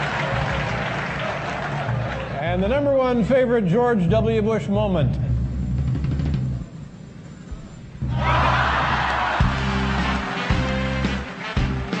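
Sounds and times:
drum hits: 0:08.0 - 0:12.0.

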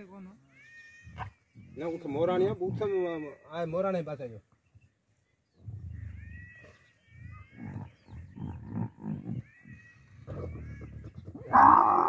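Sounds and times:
camel grunting: 0:05.6 - 0:12.0
camel bellowing: 0:05.7 - 0:12.0.

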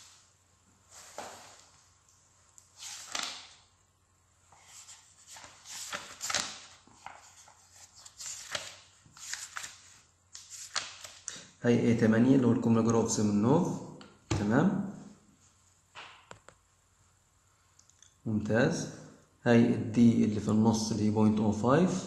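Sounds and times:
book pages flipping: 0:02.6 - 0:03.6, 0:04.5 - 0:11.3.

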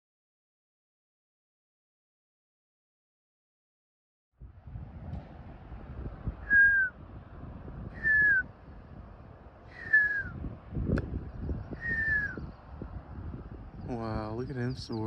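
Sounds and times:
low rumbling noise: 0:04.4 - 0:14.5
whistled notes sliding down: 0:06.5 - 0:07.0, 0:08.0 - 0:08.5, 0:09.7 - 0:10.4, 0:11.8 - 0:12.4.

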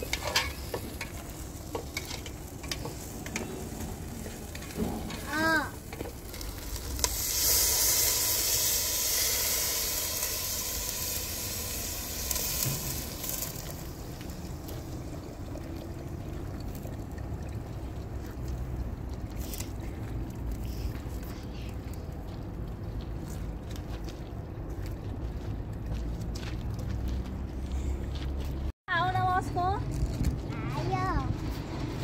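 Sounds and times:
water sizzling in hot pot: 0:00.0 - 0:19.0
water trickling from kettle: 0:08.1 - 0:19.4.

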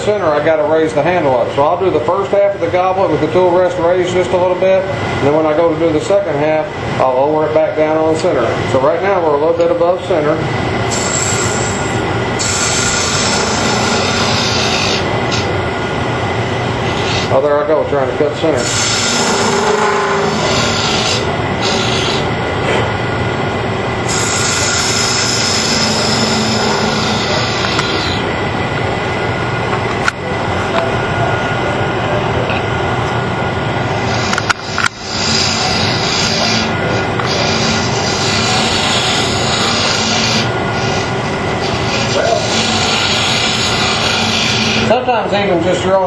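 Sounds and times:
faint hum: 0:00.0 - 0:46.0
lathe cutter scraping wood: 0:10.9 - 0:15.6, 0:16.8 - 0:17.6, 0:18.4 - 0:22.3, 0:24.1 - 0:28.3, 0:34.0 - 0:45.0.

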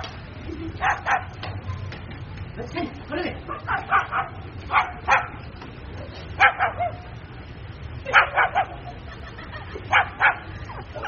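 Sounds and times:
cockatoo barking calls: 0:00.8 - 0:01.9, 0:03.4 - 0:05.5, 0:06.3 - 0:07.2, 0:08.0 - 0:09.1, 0:09.8 - 0:11.0.

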